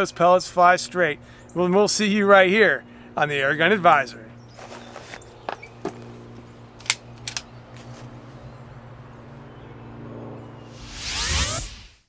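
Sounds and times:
air rifle handling clicks: 6.8s - 7.9s
whoosh sound effect: 10.7s - 12.0s.

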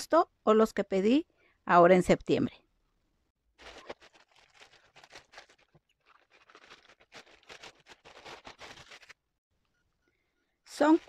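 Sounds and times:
plastic bag crinkling and tearing: 3.6s - 9.2s.

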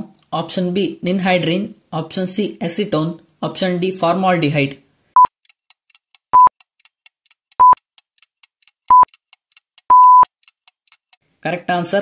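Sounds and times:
clock-like ticking: 5.2s - 11.2s
short high beeps: 7.6s - 7.8s, 8.9s - 9.1s, 9.9s - 10.3s
longer beep: 9.9s - 10.3s.

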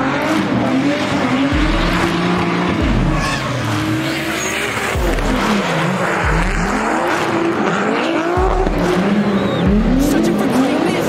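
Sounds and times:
car engines revving: 0.0s - 11.0s.

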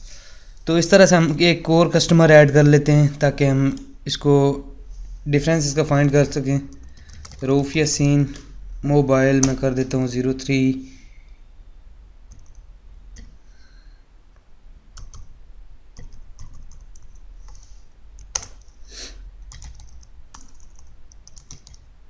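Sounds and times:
keyboard typing: 6.6s - 7.6s, 12.3s - 13.4s, 15.0s - 15.3s, 16.0s - 18.8s, 19.4s - 21.9s.

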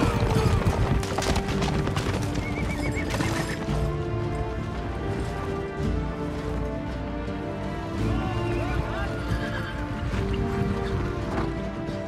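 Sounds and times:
horses whinnying: 0.0s - 4.0s, 8.0s - 11.6s
hooves clopping: 0.0s - 12.0s
music with long held notes: 0.0s - 12.0s.

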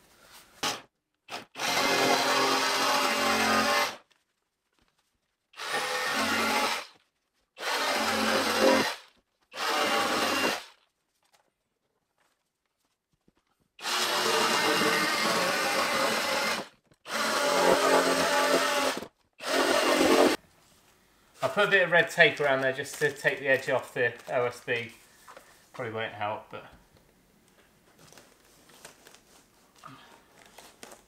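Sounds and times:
jigsaw cutting through plasterboard: 0.6s - 4.1s, 5.6s - 7.0s, 7.6s - 10.8s, 13.8s - 20.4s.

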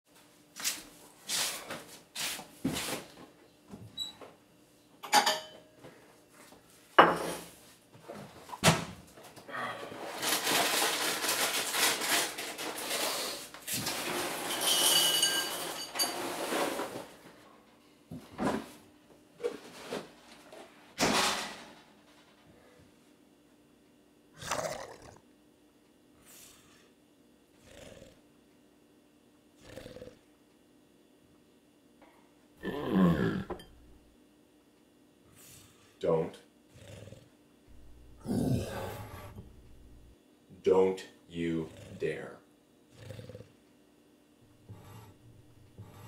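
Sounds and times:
dishes being set down: 5.0s - 5.7s, 7.0s - 7.5s, 14.5s - 16.2s.

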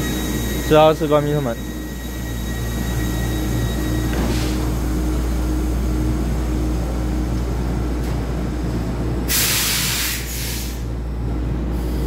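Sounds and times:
train equipment hum: 0.0s - 12.0s
compressed air hiss: 9.3s - 10.8s.

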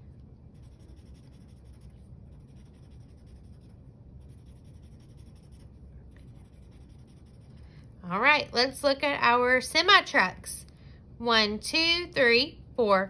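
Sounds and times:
low steady hum: 0.0s - 13.0s
marker scribbling on paper: 0.5s - 7.6s.

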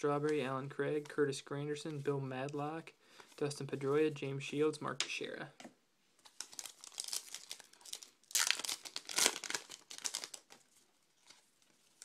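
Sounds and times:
foil wrapper crinkling and tearing: 6.3s - 12.0s.

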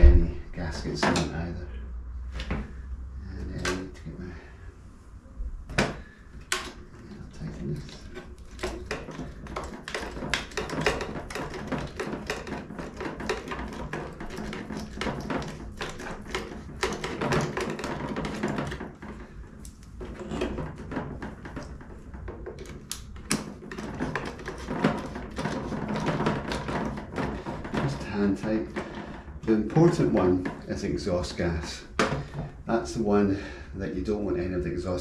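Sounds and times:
metal parts clicking and knocking: 6.4s - 30.8s.

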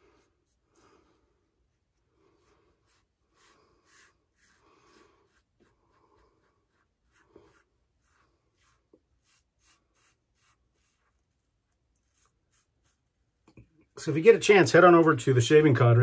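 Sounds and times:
razor scratching stubble: 6.6s - 13.1s.

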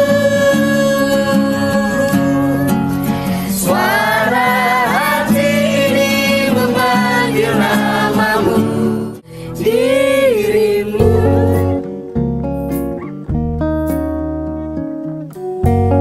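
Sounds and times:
man singing: 0.0s - 11.6s
acoustic guitar strumming: 0.0s - 16.0s
guitar music with steady bass: 0.0s - 16.0s.

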